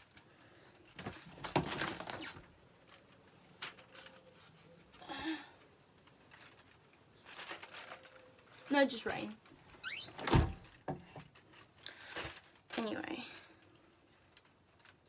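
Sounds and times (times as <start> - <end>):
brief rustle: 0.8 - 5.0, 6.0 - 8.8.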